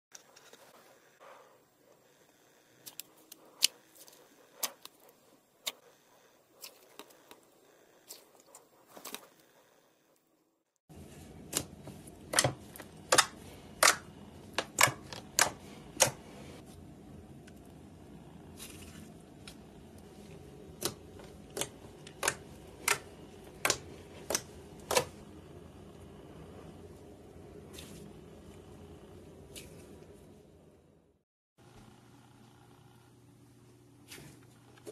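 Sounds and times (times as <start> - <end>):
low background hum: 0.2 - 34.9.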